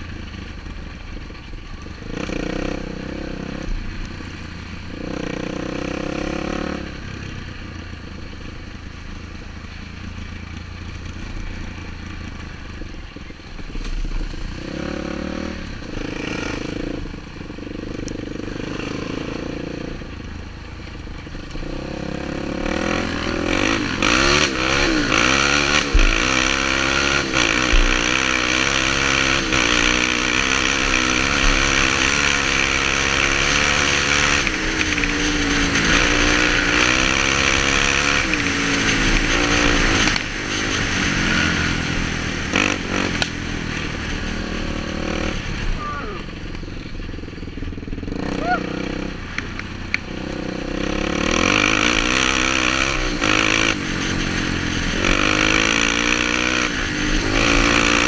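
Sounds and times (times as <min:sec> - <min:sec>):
quad bike engine revving: 0:00.0 - 0:08.4, 0:13.6 - 0:20.2, 0:21.2 - 0:58.0
rushing noise: 0:22.6 - 0:58.0.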